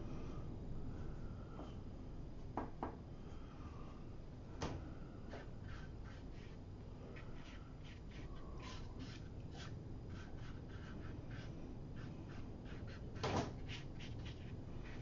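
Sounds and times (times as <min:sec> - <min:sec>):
brush scratching on paper: 0:05.3 - 0:15.0.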